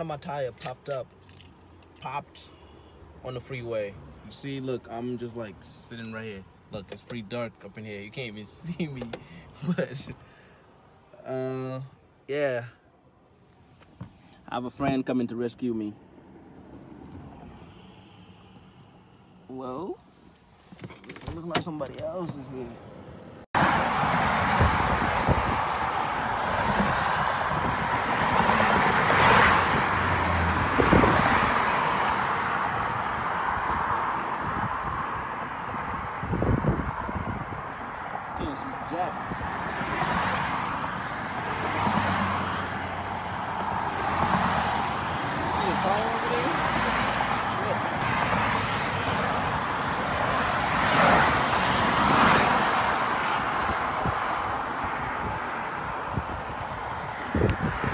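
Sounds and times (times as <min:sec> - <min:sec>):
vehicles passing close: 0:00.0 - 0:57.9
freeway traffic rushing past: 0:12.0 - 0:20.8, 0:21.4 - 0:57.9.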